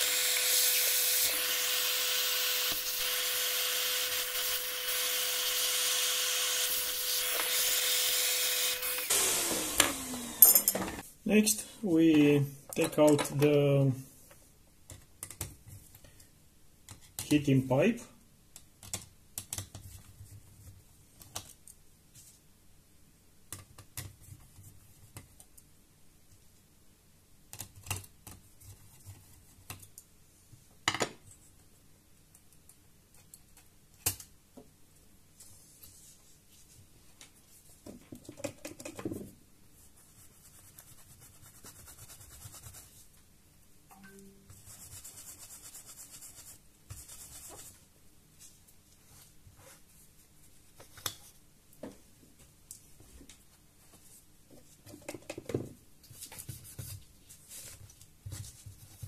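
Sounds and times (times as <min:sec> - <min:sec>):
soft handling and rustling: 0:19.7 - 0:22.5, 0:35.3 - 0:38.2, 0:47.4 - 0:55.0, 0:55.6 - 0:59.0.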